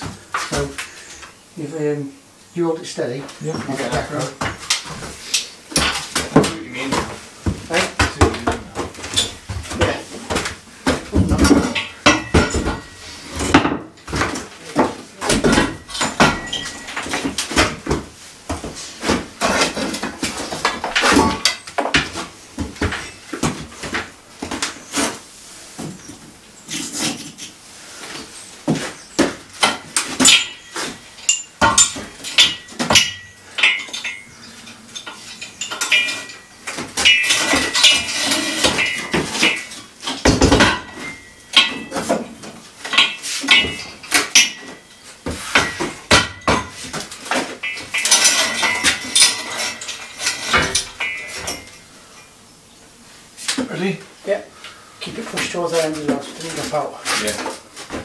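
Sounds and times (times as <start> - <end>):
high metallic ringing: 11.8 - 13.4, 15.4 - 17.3, 29.6 - 42.2, 42.9 - 46.8, 47.6 - 52.4
metal props clanking: 14.7 - 18.0, 29.5 - 52.3.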